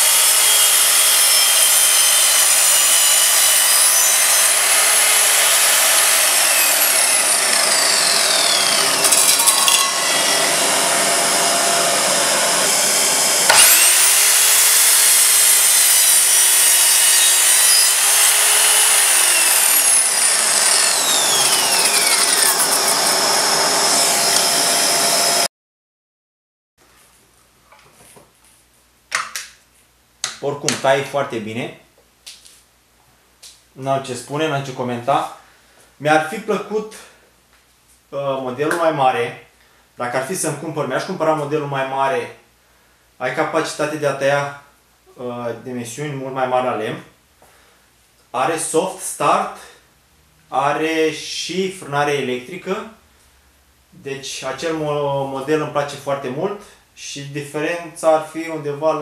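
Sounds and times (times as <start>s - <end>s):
mitre saw cutting wood: 0.0s - 25.5s
saw motor whining: 0.0s - 25.5s.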